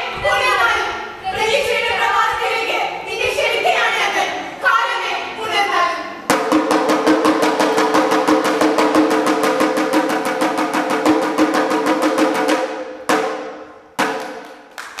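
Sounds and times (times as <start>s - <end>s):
drum roll: 6.3s - 14.8s.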